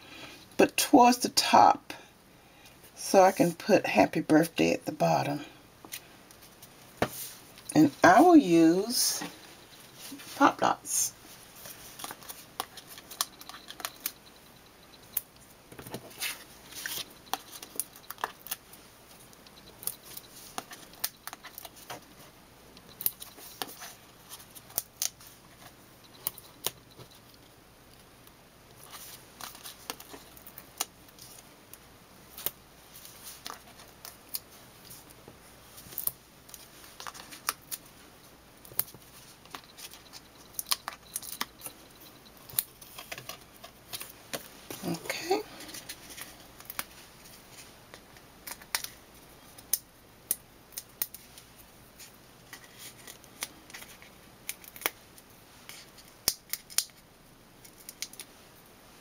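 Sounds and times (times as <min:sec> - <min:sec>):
paper handling clicks and rustles: 0:11.6 - 0:14.2, 0:35.8 - 0:37.9, 0:38.7 - 0:49.0.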